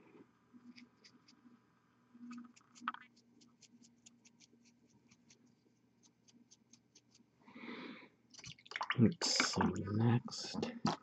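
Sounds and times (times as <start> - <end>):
paintbrush scratching strokes: 0.6 - 1.6, 2.2 - 7.3.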